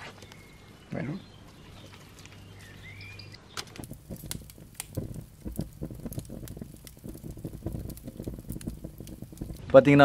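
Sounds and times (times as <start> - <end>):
flames crackling and popping: 1.5 - 10.0
low rumble: 3.8 - 9.7.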